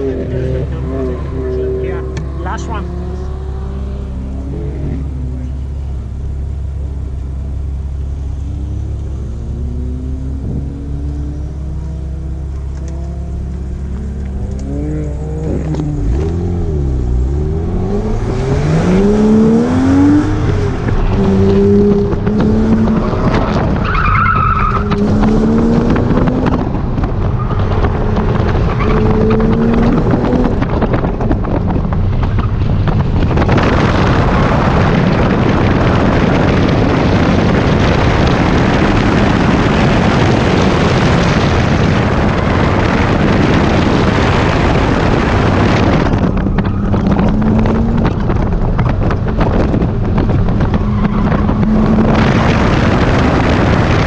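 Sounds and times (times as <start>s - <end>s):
car engine revving: 0.0s - 54.0s
loud steady rushing noise: 13.1s - 54.0s.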